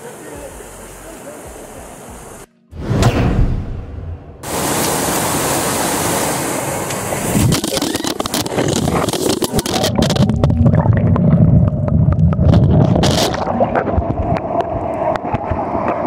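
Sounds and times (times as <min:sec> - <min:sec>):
waterfall rushing: 0:00.0 - 0:02.5, 0:04.4 - 0:09.8.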